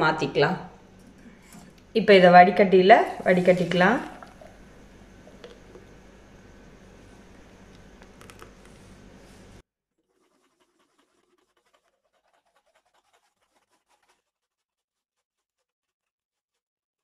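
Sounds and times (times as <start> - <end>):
background hiss and hum: 0.0 - 9.6.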